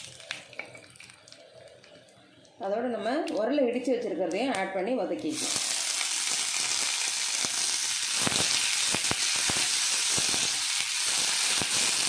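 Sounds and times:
food sizzling in hot oil: 0.0 - 1.4, 5.3 - 12.0.

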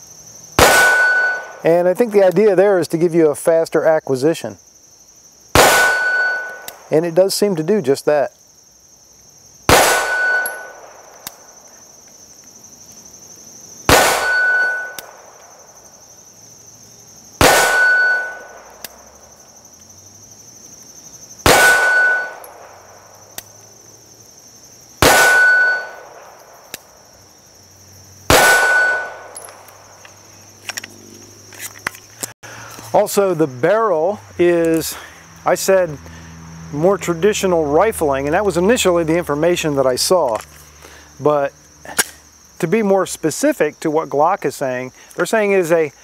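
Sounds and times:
pistol shots: 0.6 - 1.6, 5.6 - 6.8, 9.7 - 11.0, 13.9 - 15.3, 17.4 - 18.7, 21.4 - 22.7, 25.0 - 26.3, 28.3 - 29.6
steel plate ringing: 10.0 - 10.8, 14.2 - 15.0, 17.7 - 18.5, 25.3 - 26.0.

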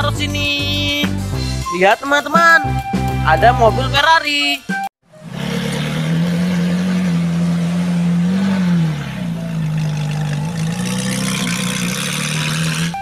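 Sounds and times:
car engine idling: 5.1 - 13.0.

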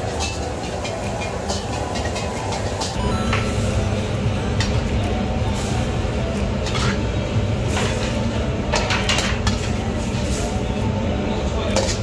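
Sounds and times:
wok clatter: 0.0 - 3.8, 4.4 - 10.9, 11.6 - 12.0
low kitchen rumble: 0.0 - 12.0.

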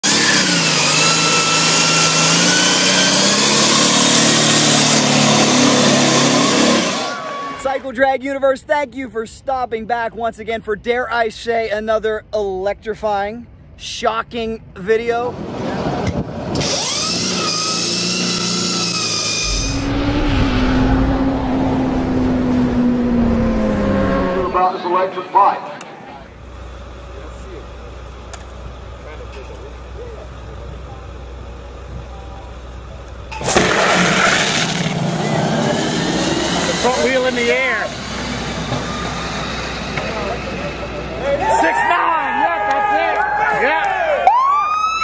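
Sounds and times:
deep rumbling motorcycle engine: 19.4 - 24.7.

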